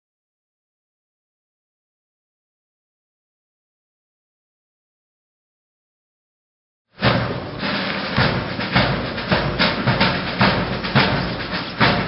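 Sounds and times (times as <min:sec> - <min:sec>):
marching drums beating: 0:07.0 - 0:12.0.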